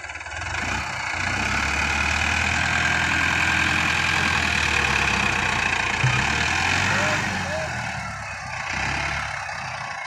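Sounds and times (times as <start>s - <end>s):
tractor diesel engine under load: 0.0s - 10.0s.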